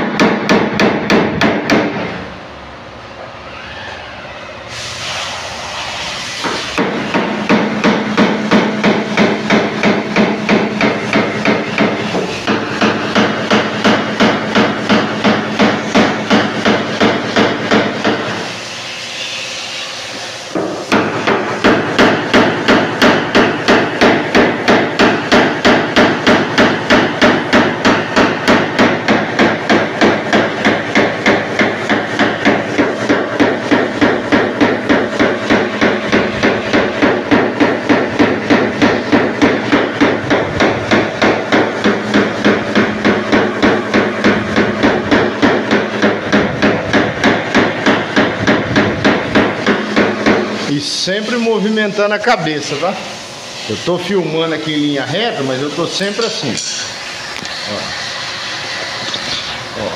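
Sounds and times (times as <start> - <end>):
hammer tapping punch on steel panel: 0.0 - 2.0, 6.4 - 18.3, 20.5 - 50.5.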